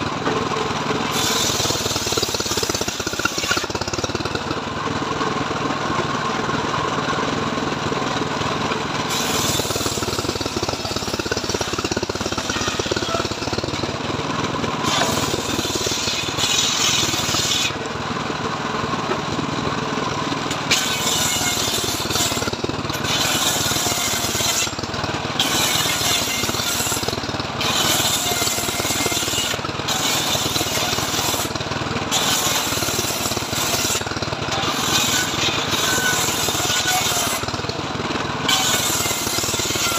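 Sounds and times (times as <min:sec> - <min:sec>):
circular saw engine running: 0:00.0 - 0:39.9
saw blade cutting hiss: 0:01.1 - 0:03.9, 0:09.1 - 0:13.5, 0:14.8 - 0:17.8, 0:20.7 - 0:24.8, 0:25.4 - 0:31.6, 0:32.2 - 0:37.6.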